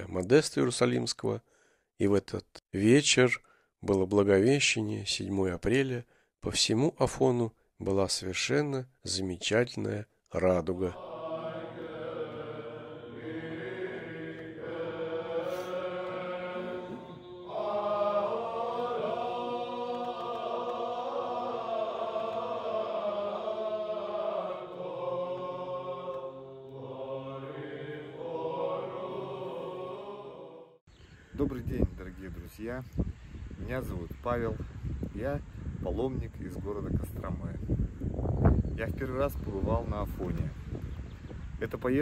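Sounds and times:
men's voices chanting: 0:10.7 - 0:30.8.

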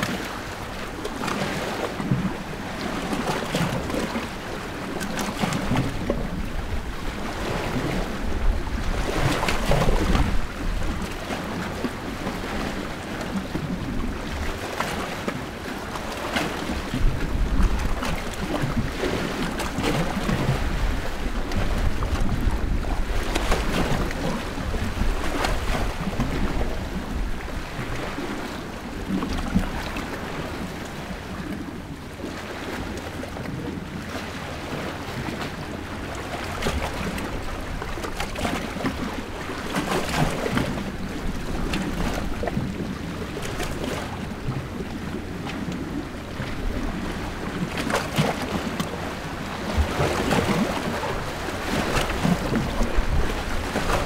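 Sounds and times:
waves splashing on rocky shore: 0:00.0 - 0:54.0.

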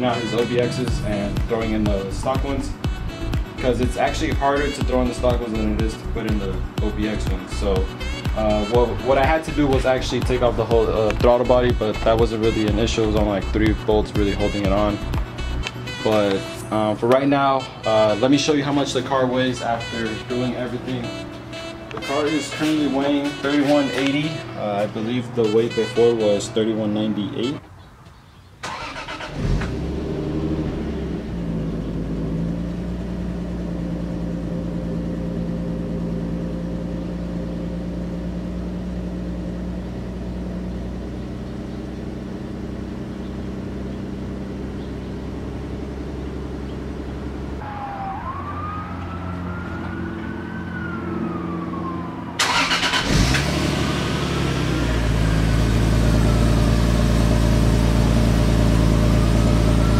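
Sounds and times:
car engine idling: 0:00.8 - 0:15.8, 0:28.7 - 0:47.8, 0:52.4 - 0:59.9.

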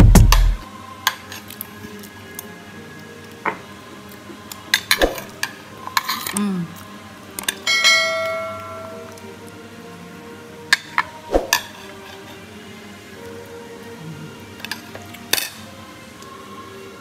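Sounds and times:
bell chime: 0:07.7 - 0:09.2.

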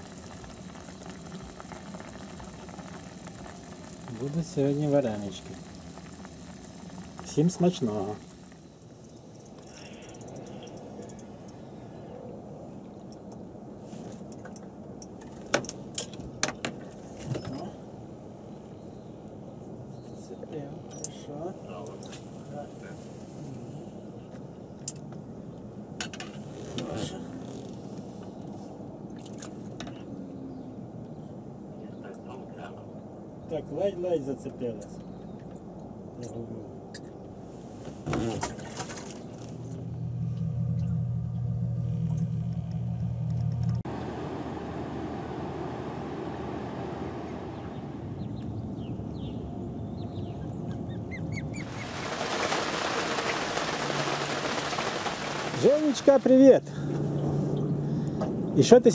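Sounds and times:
steady hiss: 0:00.0 - 0:11.7, 0:51.6 - 0:56.7
steady low rumble: 0:39.5 - 0:52.2
osprey chirping: 0:47.6 - 0:55.6.

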